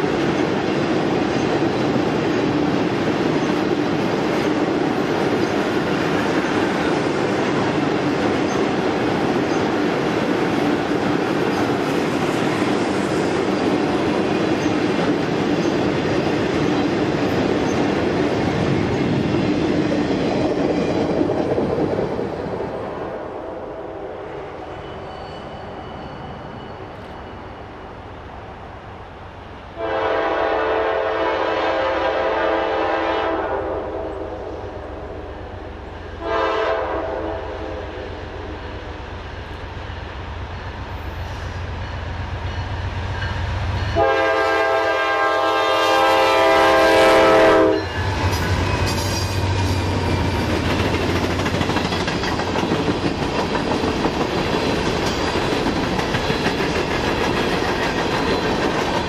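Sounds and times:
train rolling past: 0:00.0 - 0:59.0
locomotive air horn blasts: 0:29.8 - 0:34.3, 0:36.2 - 0:37.8, 0:44.0 - 0:48.0.

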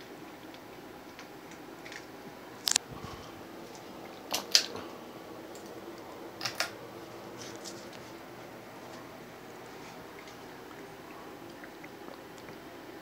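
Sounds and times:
ceiling fan humming: 0:00.0 - 0:13.0
sharp clicks: 0:02.6 - 0:02.8.

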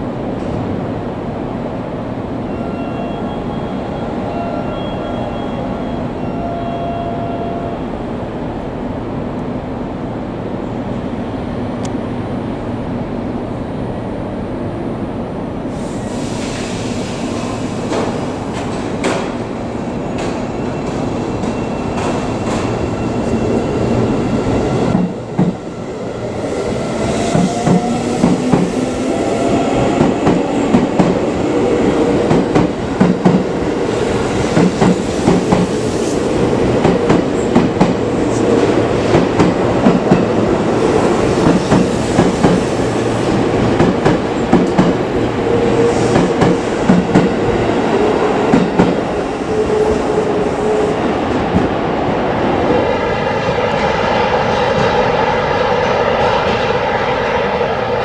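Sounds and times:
electric train hum and whine: 0:00.0 - 0:58.0.

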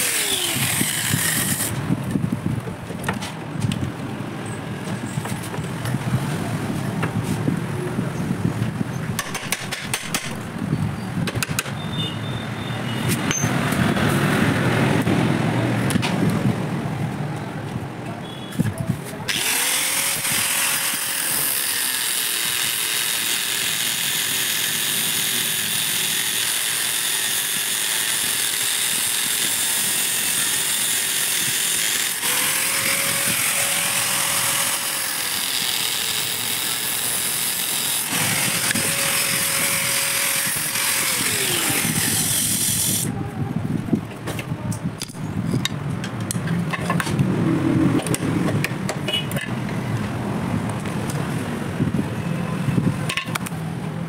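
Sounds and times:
angle grinder cutting metal: 0:00.0 - 0:01.8, 0:19.3 - 0:43.1.

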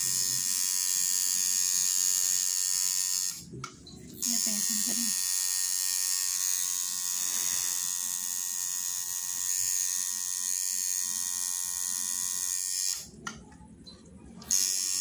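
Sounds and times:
tattoo machine buzzing: 0:00.0 - 0:03.5, 0:04.2 - 0:13.1, 0:14.4 - 0:15.0.

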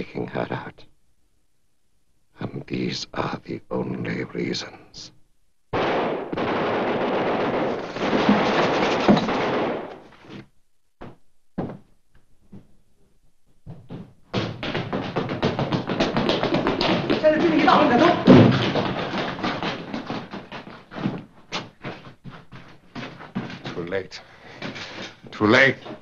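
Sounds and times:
knocks: 0:13.7 - 0:21.2.

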